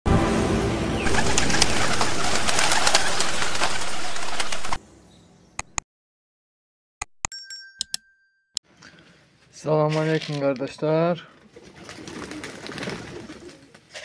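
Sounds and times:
clicks: 5.6s - 5.8s
pigeons cooing: 11.5s - 14.0s.

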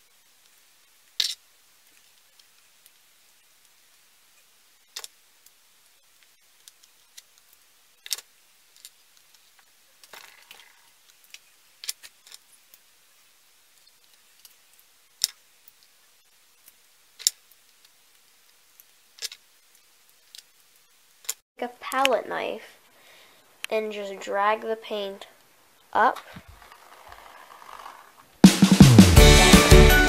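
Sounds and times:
brief rustle: 26.2s - 28.2s.

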